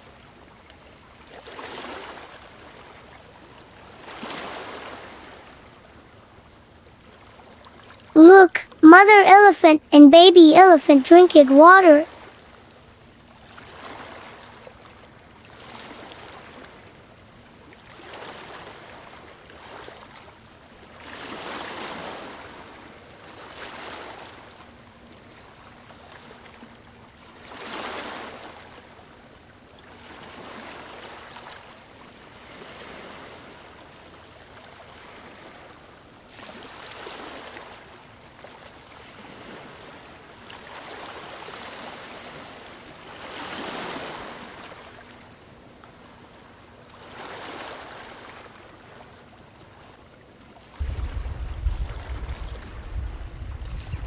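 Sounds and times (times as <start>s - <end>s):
water washing and rushing: 50.8s - 54.0s.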